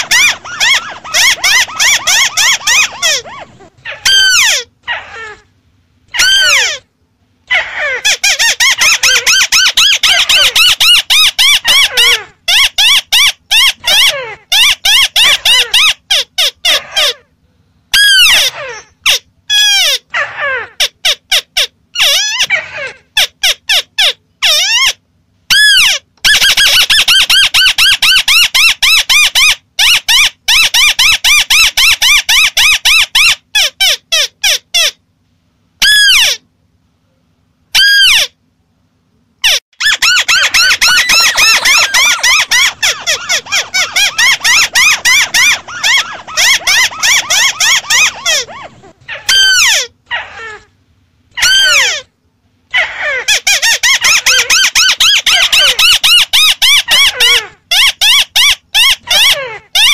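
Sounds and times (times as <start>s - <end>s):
crakes calling: 0.0s - 5.3s, 39.8s - 50.4s.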